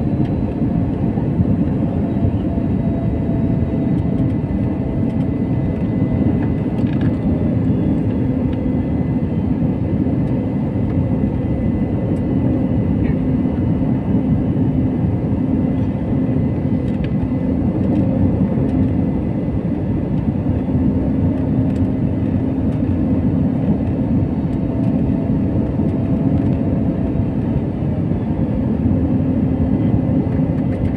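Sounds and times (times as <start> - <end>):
jet engine drone in cabin: 0.0 - 30.9.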